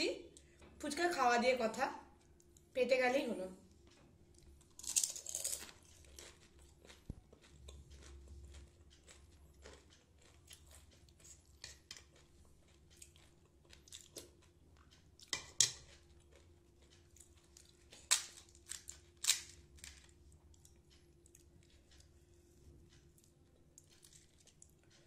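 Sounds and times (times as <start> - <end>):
crisp shells cracking: 4.8 - 5.8, 18.0 - 20.0.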